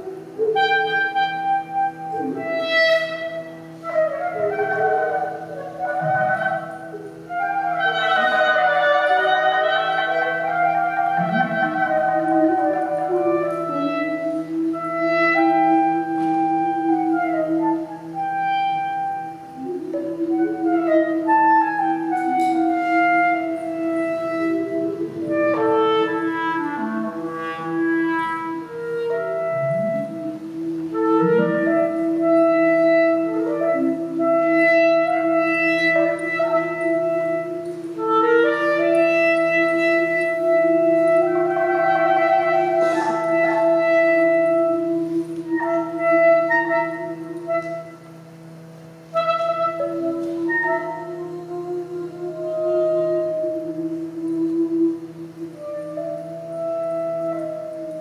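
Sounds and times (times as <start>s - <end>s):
clarinet improvising: 0.0s - 58.0s.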